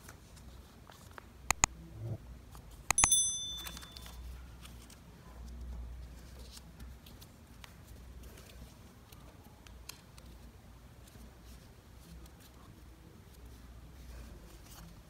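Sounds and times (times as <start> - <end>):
mouse clicks: 1.5 - 1.7
short high bell ding: 2.9 - 4.2.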